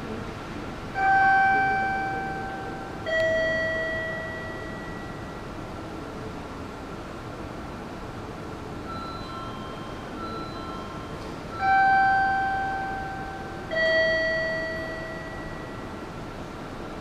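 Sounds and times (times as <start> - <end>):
steady background hiss: 0.0 - 17.0
faint short chime notes: 1.0 - 5.8, 8.9 - 16.2
two-tone electronic chime: 1.0 - 5.8, 8.9 - 16.2.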